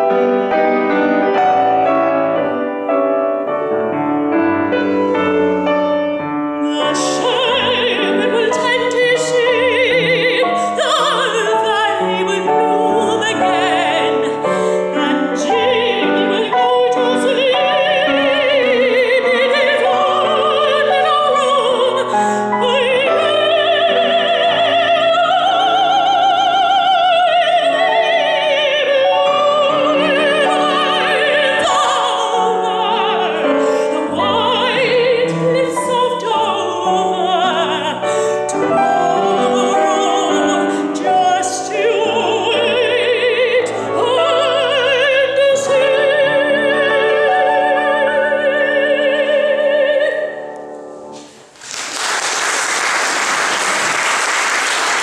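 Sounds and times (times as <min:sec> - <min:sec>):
grand piano accompaniment: 0:00.0 - 0:55.0
woman singing with vibrato: 0:06.6 - 0:50.6
audience applauding: 0:51.5 - 0:55.0.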